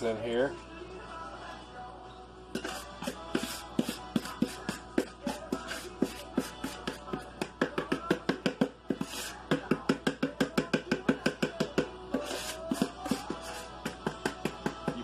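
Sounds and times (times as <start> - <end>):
utensil knocking plastic bowl: 6.7 - 8.8, 9.5 - 11.9.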